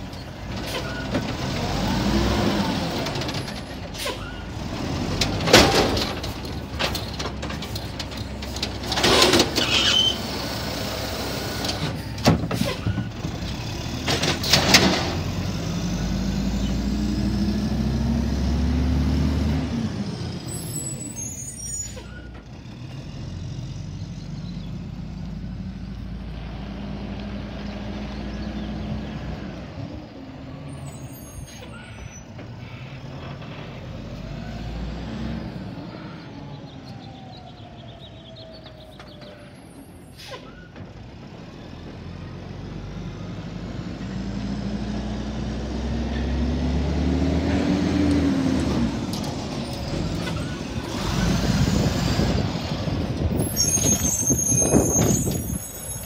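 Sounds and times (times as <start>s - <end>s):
diesel truck engine: 0.0s - 56.0s
air brakes hissing: 3.9s - 4.5s, 39.4s - 40.7s.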